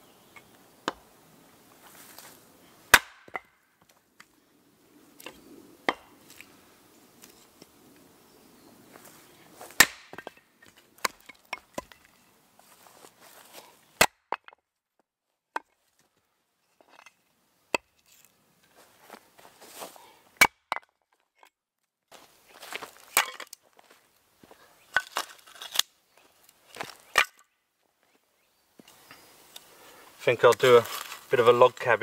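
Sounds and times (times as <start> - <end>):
axe strikes splitting log: 2.9 - 3.5, 9.8 - 10.4, 14.0 - 14.5
firewood pieces clattering: 9.8 - 12.2, 22.8 - 23.7, 24.9 - 25.9, 26.7 - 27.4.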